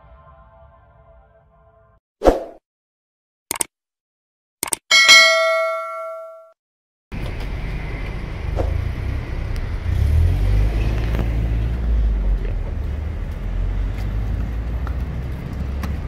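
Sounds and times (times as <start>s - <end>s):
road traffic rumble: 7.1s - 16.0s.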